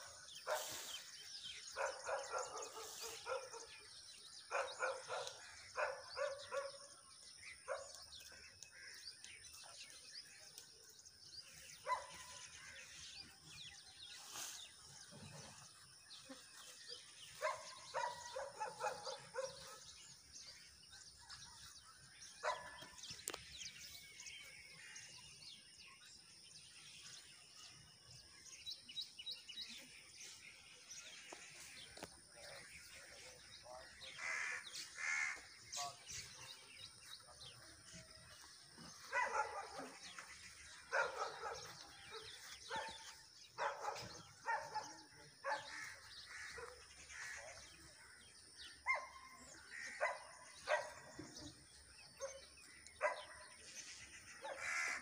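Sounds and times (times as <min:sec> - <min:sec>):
small birds chirping: 0:00.0 - 0:55.0
dog barking: 0:00.4 - 0:00.8, 0:01.8 - 0:03.8, 0:04.5 - 0:06.9, 0:07.6 - 0:08.0, 0:11.8 - 0:12.4, 0:17.4 - 0:19.9, 0:22.4 - 0:23.0, 0:39.0 - 0:40.3, 0:40.9 - 0:45.7, 0:48.8 - 0:51.5, 0:52.2 - 0:52.4, 0:53.0 - 0:53.5, 0:54.4 - 0:54.8.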